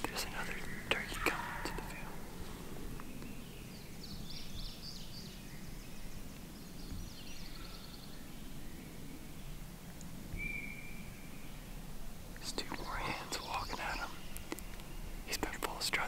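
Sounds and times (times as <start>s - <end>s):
low background noise: 0.0s - 16.0s
songbirds calling: 0.0s - 16.0s
short whistled bird note: 10.4s - 11.1s.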